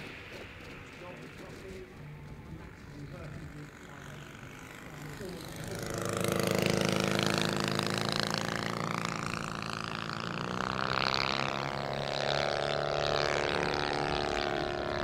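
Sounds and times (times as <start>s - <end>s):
model aircraft engine running: 0.0s - 15.0s.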